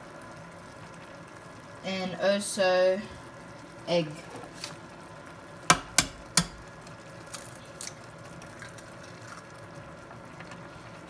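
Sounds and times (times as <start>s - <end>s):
pot simmering: 0.0s - 11.0s
egg tapping on saucepan rim: 5.7s - 6.6s.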